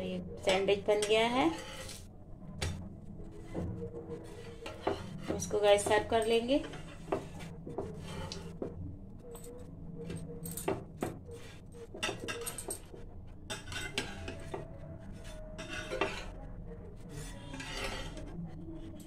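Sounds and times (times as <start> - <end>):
steel spatula scraping a griddle: 1.4 - 2.1, 4.2 - 5.6, 6.6 - 8.6, 13.5 - 19.0.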